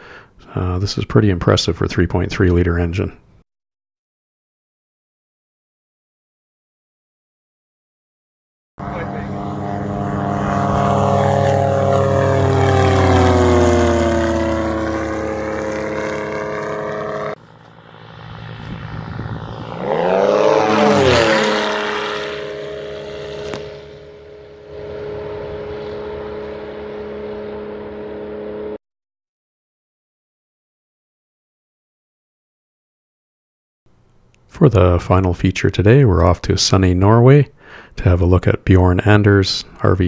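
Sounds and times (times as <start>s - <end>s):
propeller aircraft flying past: 8.8s - 28.8s.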